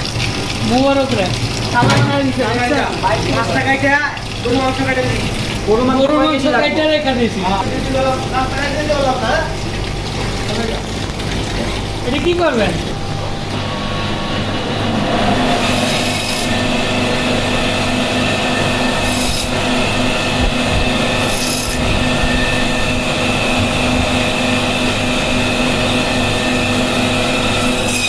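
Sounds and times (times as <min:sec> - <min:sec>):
band saw humming and whining: 0:01.8 - 0:28.0
saw blade rasping through fish: 0:15.2 - 0:16.8, 0:18.2 - 0:22.8, 0:26.9 - 0:28.0.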